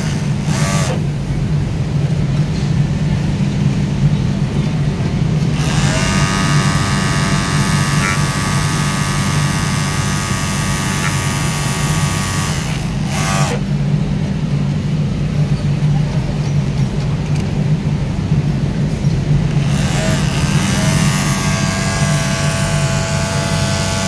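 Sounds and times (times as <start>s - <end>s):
overlock sewing machine whine: 0.0s - 1.5s, 5.4s - 13.8s, 19.4s - 24.0s
steady low hum: 0.0s - 24.0s.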